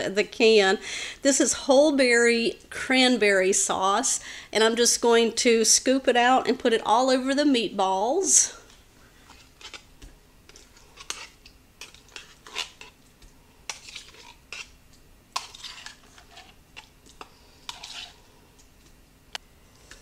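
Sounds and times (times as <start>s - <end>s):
metal spoon scraping a tin can: 10.5s - 13.0s, 13.7s - 18.3s.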